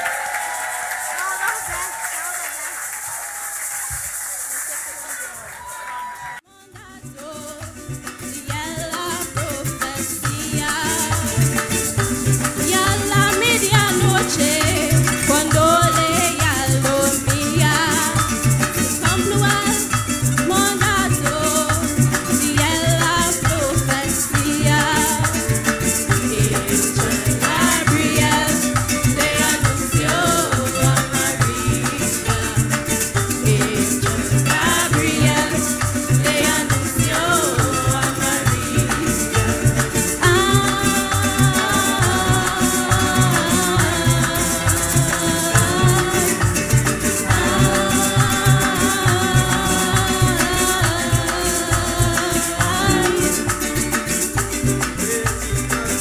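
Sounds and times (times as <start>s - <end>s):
maracas shaking: 0.0s - 56.0s
person singing: 5.9s - 56.0s.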